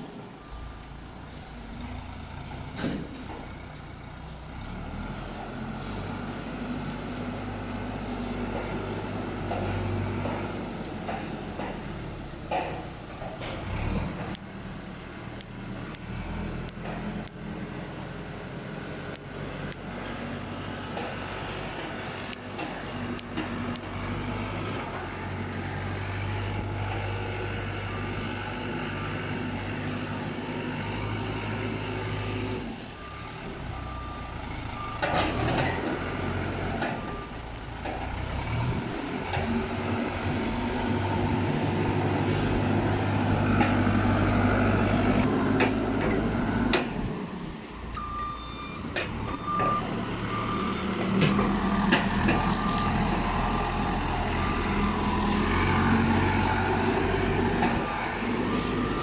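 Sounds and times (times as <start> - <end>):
diesel engine running: 0.0 - 59.0
reversing alarm beeping: 47.9 - 55.8.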